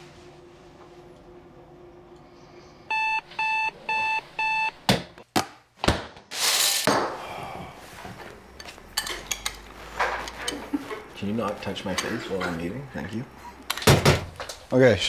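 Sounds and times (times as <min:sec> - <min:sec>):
digital alarm clock beeping: 0:02.9 - 0:04.7.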